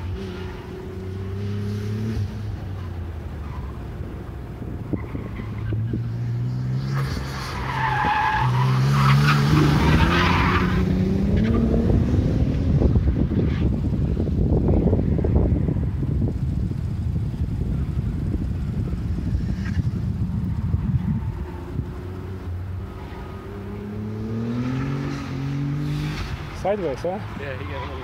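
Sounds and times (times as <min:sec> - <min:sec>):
sports car engine revving: 0:08.6 - 0:13.4.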